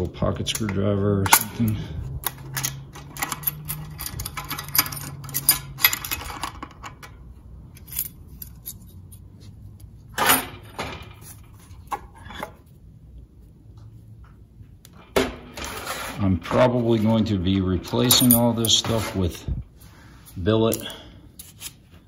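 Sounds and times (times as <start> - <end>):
screwdriver clicking and scraping metal: 0.4 - 7.1, 7.7 - 10.3, 20.7 - 22.0
metal parts clinking: 0.4 - 12.7, 14.9 - 19.5.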